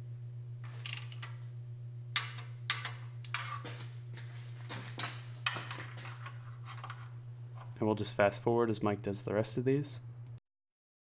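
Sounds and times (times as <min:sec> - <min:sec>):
steady low hum: 0:00.0 - 0:10.4.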